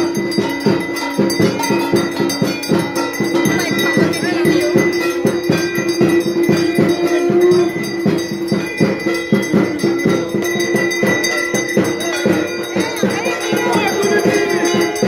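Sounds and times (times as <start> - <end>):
drums beating fast rhythm: 0.0 - 15.0.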